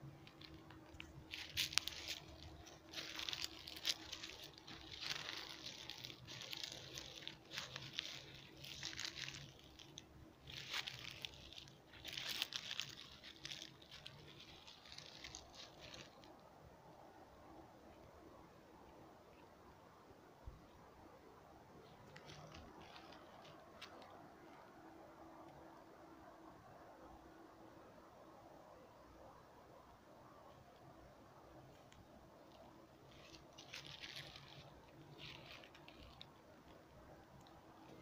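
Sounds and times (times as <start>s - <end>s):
footsteps crunching dry leaves: 0.0s - 16.4s, 21.8s - 24.2s, 32.5s - 36.8s.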